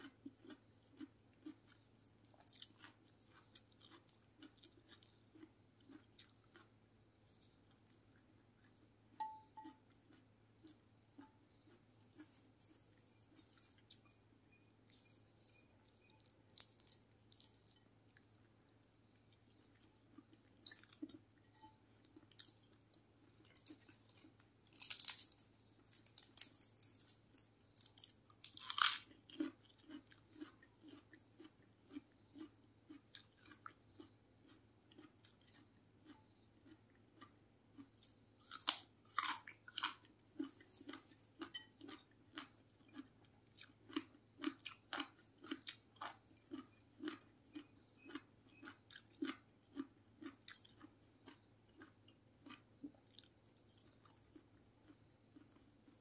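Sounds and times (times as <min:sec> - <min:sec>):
person chewing food: 0:00.0 - 0:56.0
crisp crunches: 0:24.8 - 0:27.2.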